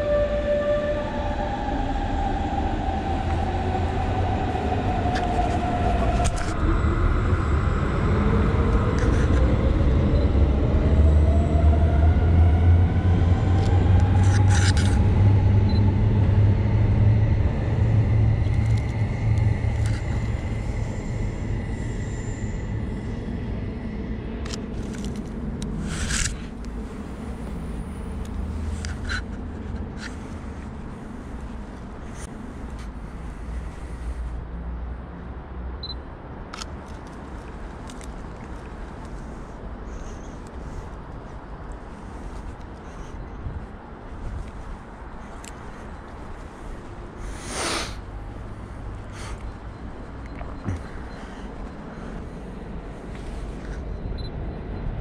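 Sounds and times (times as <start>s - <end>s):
train motor whine: 0.0s - 23.8s
electric train rumbling: 0.0s - 55.0s.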